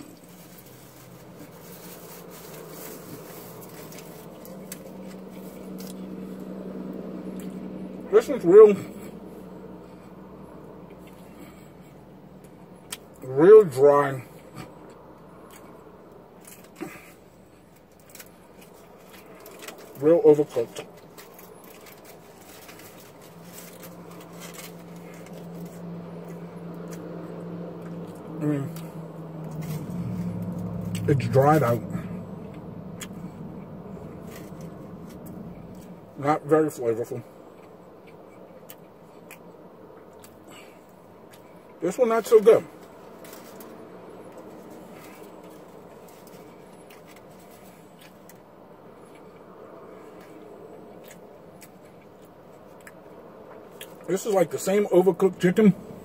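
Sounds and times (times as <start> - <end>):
foil crackling: 0.0 - 6.0, 21.0 - 25.8
low car hum: 0.0 - 56.0
person chewing food: 14.6 - 20.0, 37.4 - 41.8, 42.9 - 54.1.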